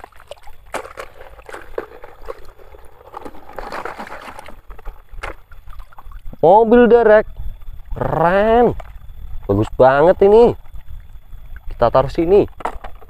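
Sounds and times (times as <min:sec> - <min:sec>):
soft scraping and shifting: 0:00.7 - 0:05.8.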